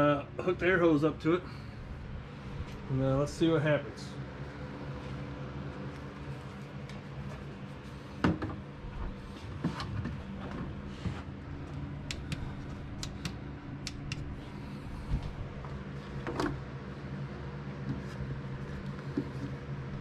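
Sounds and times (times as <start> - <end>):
small air pump humming: 0.0 - 20.0
sharp clicks: 12.0 - 14.3.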